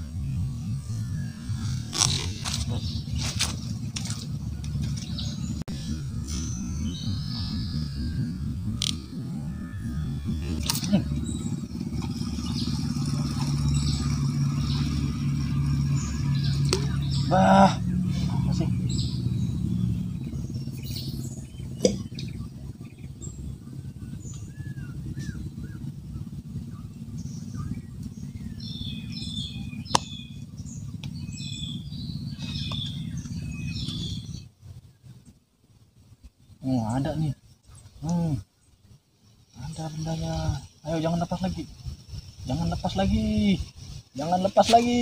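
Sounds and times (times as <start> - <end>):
bird chirping: 0.0 - 35.4
engine droning: 0.0 - 45.0
steady low rumble: 0.0 - 45.0.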